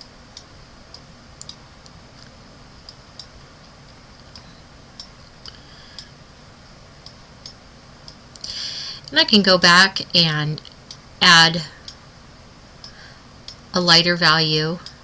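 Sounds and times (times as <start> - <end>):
faint room tone hiss: 0.0 - 15.0
stylus clicks: 0.4 - 6.1.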